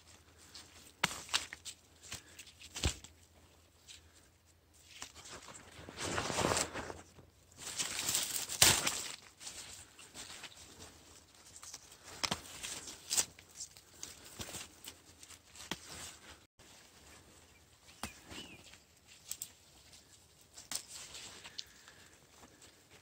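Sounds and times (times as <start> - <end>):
dry leaves rustling and crunching: 4.9 - 22.0.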